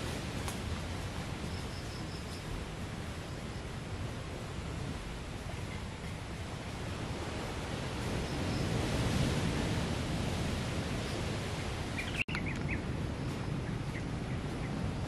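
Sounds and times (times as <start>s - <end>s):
distant surf: 0.0s - 15.0s.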